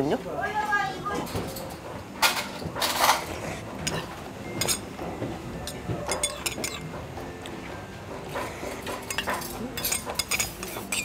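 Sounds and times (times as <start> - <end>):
spoon clinking on metal bowl: 3.8 - 4.9, 5.6 - 6.9, 9.0 - 11.0.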